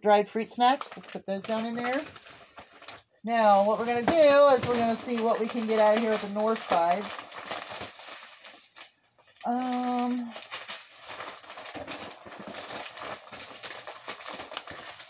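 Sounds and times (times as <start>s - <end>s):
packages and cans rustling: 0.6s - 15.0s.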